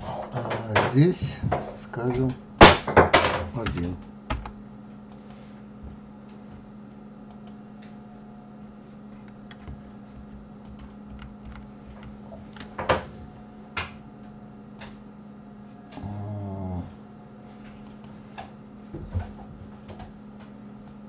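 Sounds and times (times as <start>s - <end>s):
low electrical hum: 0.0s - 21.0s
computer mouse clicks: 7.3s - 7.6s, 10.6s - 12.7s.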